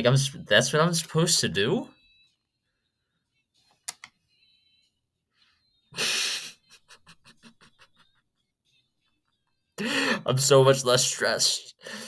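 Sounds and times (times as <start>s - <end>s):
man laughing breathily: 5.9s - 8.5s, 9.2s - 10.3s.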